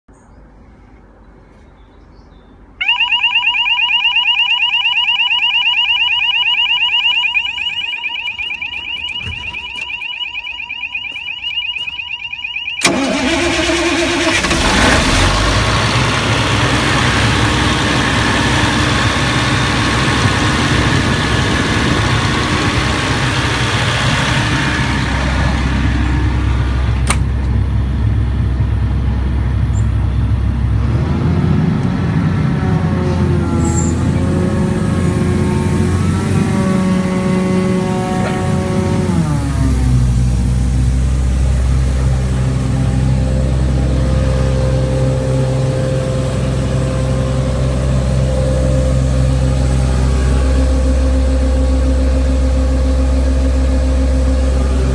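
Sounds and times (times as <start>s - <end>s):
diesel engine starting and running: 0.2s - 54.9s
electronic warning tone: 2.8s - 14.6s.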